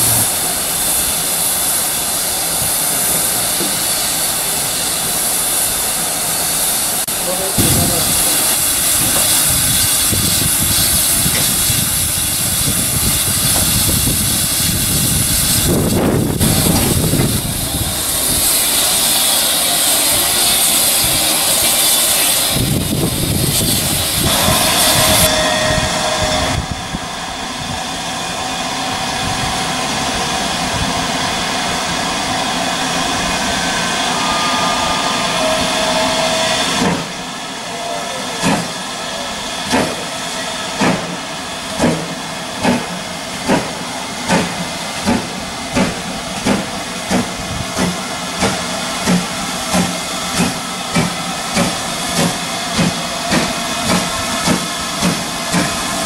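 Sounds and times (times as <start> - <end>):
steam locomotive hissing: 0.0 - 56.0
wind buffeting microphone: 7.6 - 18.7, 22.5 - 27.9, 47.2 - 47.9.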